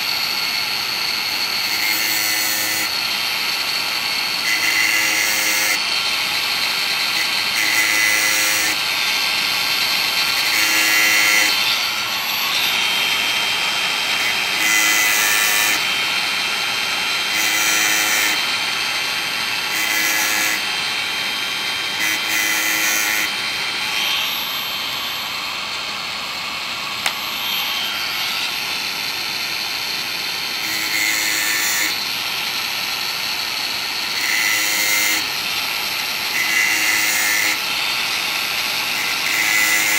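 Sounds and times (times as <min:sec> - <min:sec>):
angle grinder grinding chain cutters: 0:00.0 - 0:39.9.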